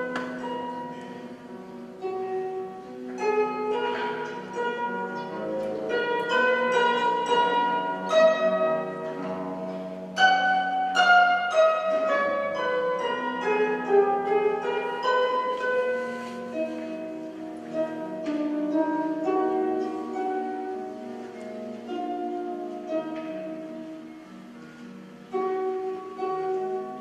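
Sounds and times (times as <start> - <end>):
harp plucked notes and chords: 0.0 - 27.0.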